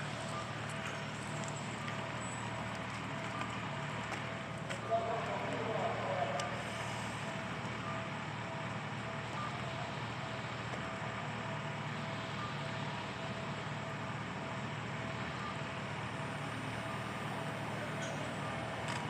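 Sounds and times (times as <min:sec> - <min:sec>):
train equipment hum and hiss: 0:04.8 - 0:10.7.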